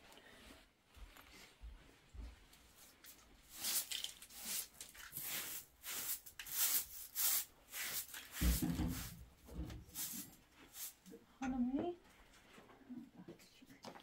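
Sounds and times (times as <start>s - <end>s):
hand broom sweeping floor: 2.7s - 11.1s.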